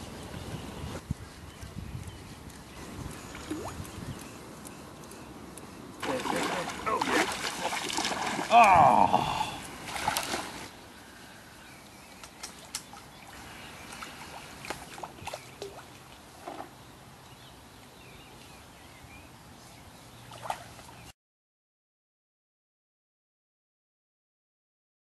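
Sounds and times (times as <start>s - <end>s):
lapping water: 1.6s - 10.7s, 12.2s - 16.8s
fish splashing at water surface: 6.0s - 8.8s, 9.8s - 10.7s.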